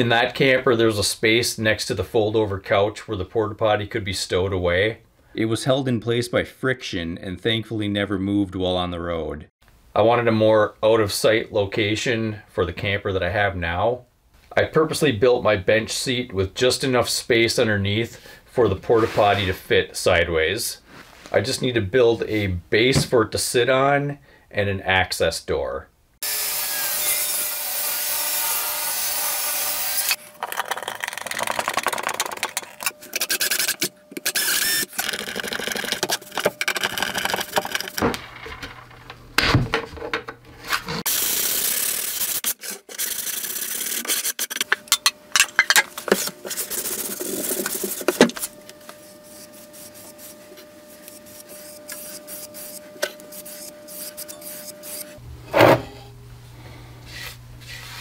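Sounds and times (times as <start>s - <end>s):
sawing wood: 26.2s - 30.2s, 32.8s - 38.0s, 40.9s - 44.7s, 46.2s - 55.2s
table saw cutting plywood: 26.2s - 38.0s, 40.9s - 44.7s, 46.2s - 55.8s
scraping and rubbing on wood: 45.6s - 55.2s.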